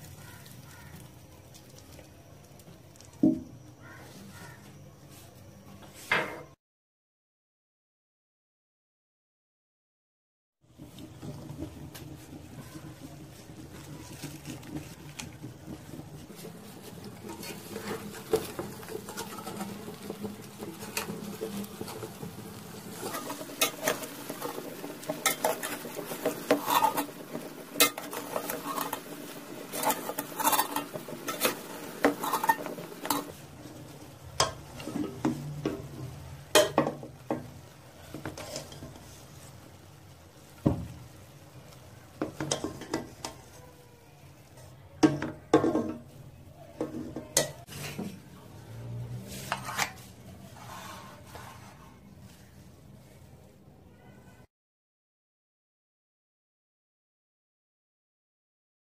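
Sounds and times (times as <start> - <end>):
metal spoon scraping metal pot: 22.9 - 33.4, 38.1 - 39.0, 49.2 - 51.8.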